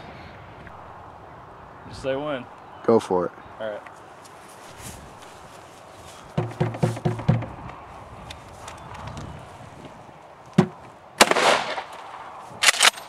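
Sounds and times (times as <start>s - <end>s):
sharp knock on wooden door: 6.4s - 7.7s, 10.6s - 10.8s
shotgun blast: 11.2s - 11.9s.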